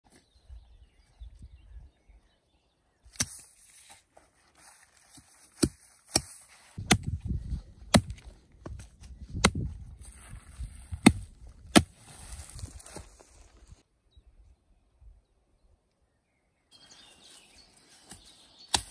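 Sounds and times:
brush rustling: 0:03.2 - 0:13.8
axe chopping wood: 0:05.6 - 0:07.2, 0:07.9 - 0:08.8, 0:09.4 - 0:09.7, 0:11.0 - 0:12.0.

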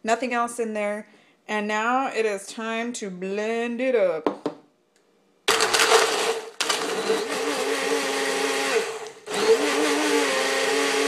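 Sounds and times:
blender chopping ice: 0:05.5 - 0:11.0.

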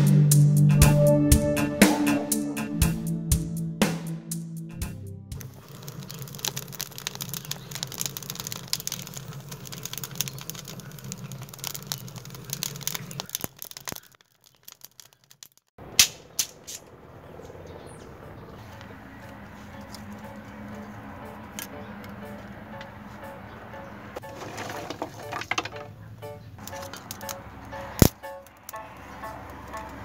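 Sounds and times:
low rumble: 0:00.7 - 0:05.6
wood fire crackling: 0:04.8 - 0:15.8, 0:24.2 - 0:30.0.

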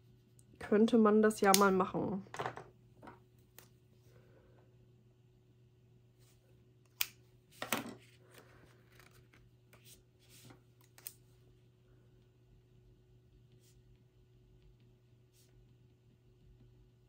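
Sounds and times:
faint steady hum: 0:00.0 - 0:17.0
plastic sleeves rustling: 0:07.5 - 0:11.3.

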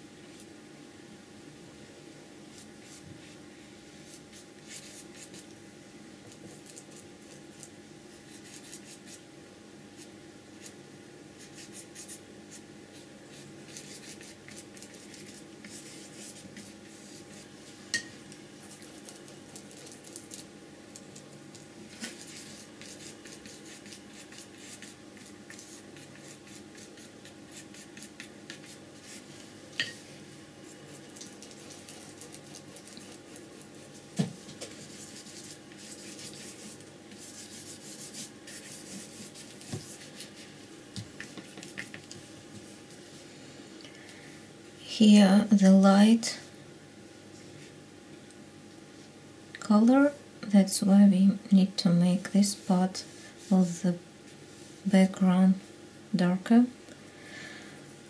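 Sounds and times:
faint steady hum: 0:00.0 - 0:58.0
brush stroking paint on paper: 0:02.5 - 0:03.4, 0:04.0 - 0:05.5, 0:06.3 - 0:09.2, 0:11.4 - 0:17.9, 0:21.9 - 0:43.2.

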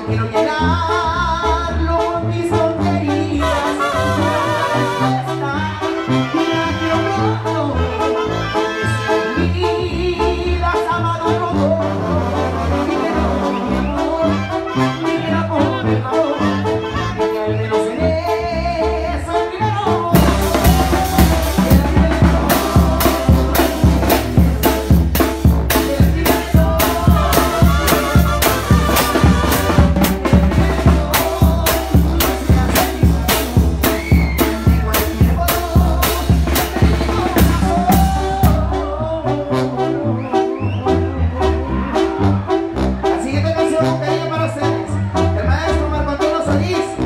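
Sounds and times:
brass band music: 0:00.0 - 0:47.0
person singing: 0:00.0 - 0:47.0
drum kit and bass beat: 0:20.0 - 0:39.0.

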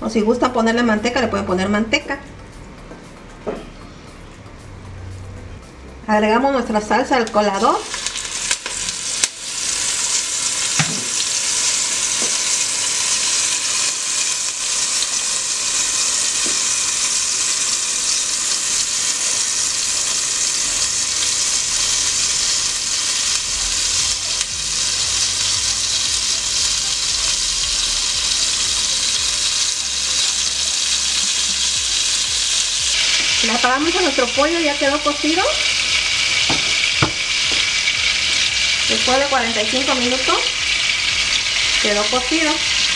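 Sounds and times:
salsa sizzling in hot oil: 0:06.7 - 0:42.9.

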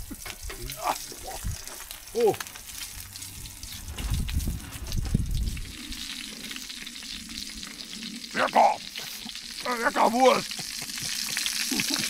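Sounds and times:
sausage sizzling: 0:00.0 - 0:12.0
low rumbling: 0:02.8 - 0:08.3.

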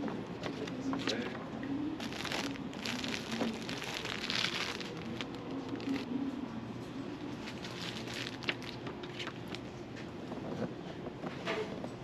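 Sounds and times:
plastic packaging crinkling: 0:02.0 - 0:06.1, 0:07.3 - 0:09.6.

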